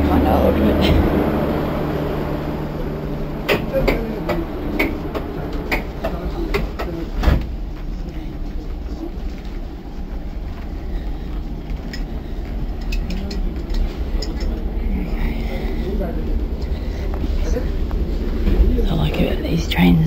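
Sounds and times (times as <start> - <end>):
carriage low rumble: 0.0 - 20.0
footsteps in train aisle: 4.0 - 14.8.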